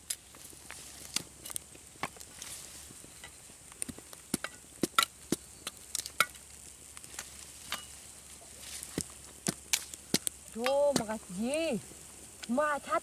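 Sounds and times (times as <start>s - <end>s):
faint steady hiss: 0.0s - 13.0s
wood fire crackling: 0.0s - 13.0s.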